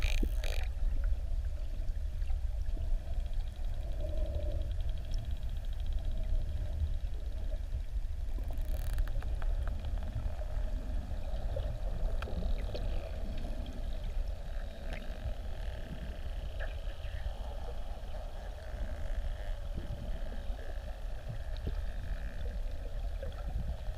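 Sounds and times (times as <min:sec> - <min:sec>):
dolphin echolocation clicks: 0:00.0 - 0:00.7
low underwater sea rumble: 0:00.0 - 0:23.9.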